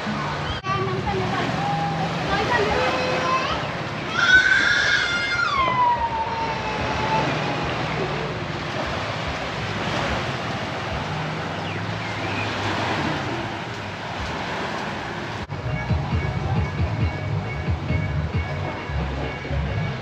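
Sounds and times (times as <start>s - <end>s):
small waves on beach: 0.0s - 15.5s
wind: 0.0s - 20.0s.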